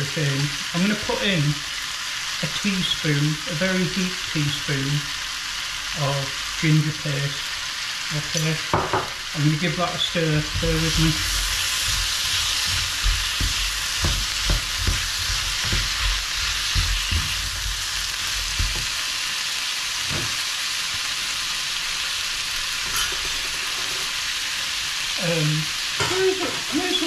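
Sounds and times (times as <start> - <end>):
vegetables sizzling in a frying pan: 0.0 - 27.0
wooden spatula scraping a pan: 10.0 - 19.1.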